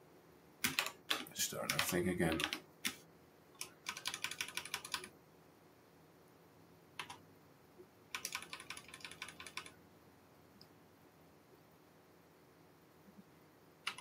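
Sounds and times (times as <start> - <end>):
computer keyboard keystrokes: 0.6 - 3.0, 3.6 - 5.1, 7.0 - 7.2, 8.1 - 9.7.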